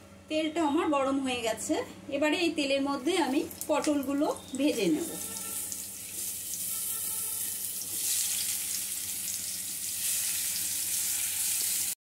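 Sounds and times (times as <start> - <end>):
vegetables sizzling in hot oil: 3.6 - 12.0.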